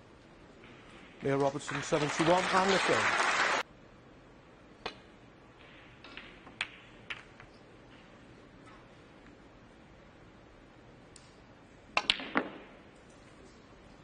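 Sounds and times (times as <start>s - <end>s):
applause: 1.2s - 3.6s
snooker balls clicking: 4.8s - 8.1s, 11.9s - 13.2s.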